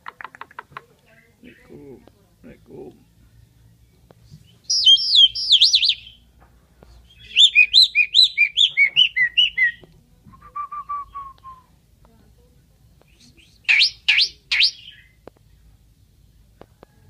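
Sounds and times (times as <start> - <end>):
starling singing whistles: 4.4 - 6.2, 7.0 - 9.8, 10.4 - 11.7, 13.1 - 15.2.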